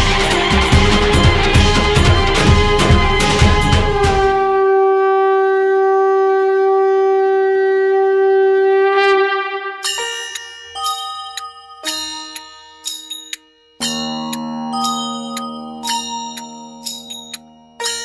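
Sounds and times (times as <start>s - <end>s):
drum-heavy music: 0.0s - 4.5s
long steady horn note: 0.0s - 9.8s
bell-like chimes: 9.8s - 18.0s.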